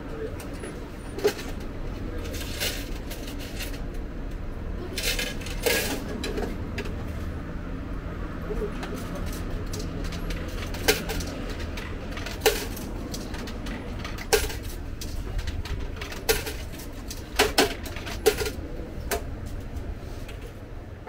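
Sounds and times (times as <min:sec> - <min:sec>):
metal boxes clinking and knocking: 0:08.8 - 0:19.4.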